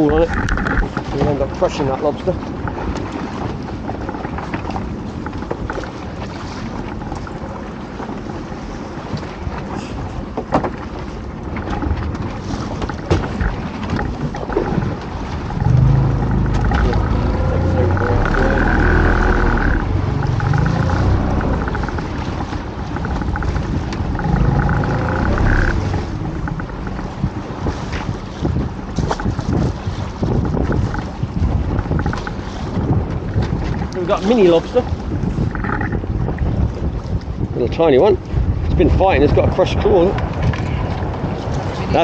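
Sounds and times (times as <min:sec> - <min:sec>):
choppy water against boat: 0:00.0 - 0:42.0
wind: 0:00.0 - 0:42.0
motor droning with whine: 0:15.5 - 0:22.1, 0:24.0 - 0:26.9.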